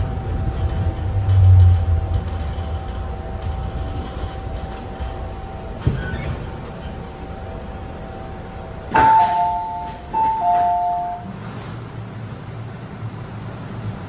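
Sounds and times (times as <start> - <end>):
train stopping thump: 0.0 - 7.1, 8.8 - 11.8
train running rumble: 0.0 - 14.0
two-note door chime: 8.9 - 11.4.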